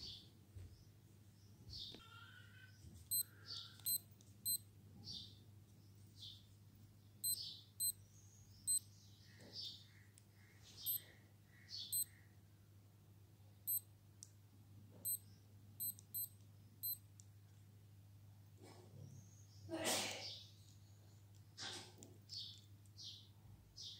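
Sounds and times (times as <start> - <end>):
watch beeping: 3.1 - 4.6, 7.2 - 8.0, 8.7 - 8.9, 10.9 - 11.1, 11.9 - 12.1, 13.7 - 13.9, 15.0 - 15.2, 15.8 - 17.0.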